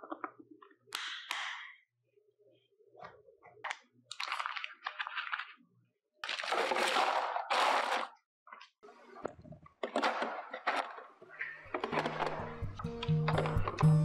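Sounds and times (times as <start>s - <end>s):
ice rattling: 6.3s - 8.1s.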